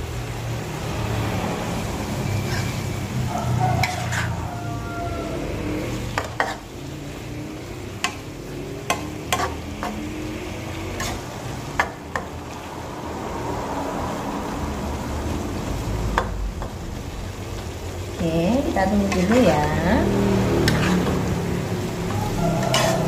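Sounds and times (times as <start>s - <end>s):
food sizzling in a wok: 0.0s - 23.0s
metal spatula scraping pan: 2.3s - 3.1s, 3.7s - 4.5s, 5.4s - 12.6s, 18.9s - 23.0s.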